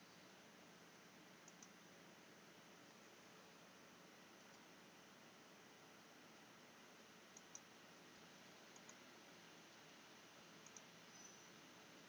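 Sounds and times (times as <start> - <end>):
steady low hiss: 0.0 - 12.0.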